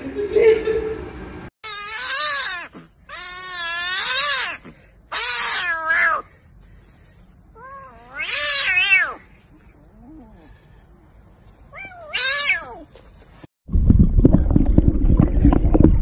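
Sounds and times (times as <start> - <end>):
kitten meowing: 1.6 - 6.3, 7.6 - 9.2, 11.8 - 12.8.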